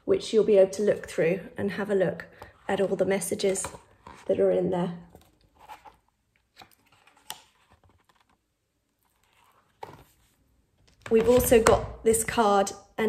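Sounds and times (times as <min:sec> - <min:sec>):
paper rustling: 0:05.1 - 0:11.2.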